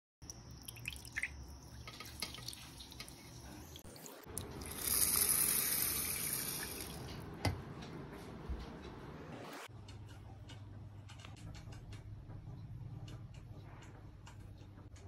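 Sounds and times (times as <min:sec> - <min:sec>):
water pouring from a jug: 0:00.2 - 0:07.0.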